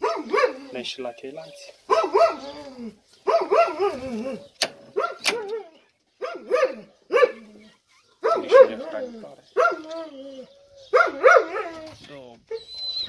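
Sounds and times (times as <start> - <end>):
sharp clicks: 4.6 - 5.6.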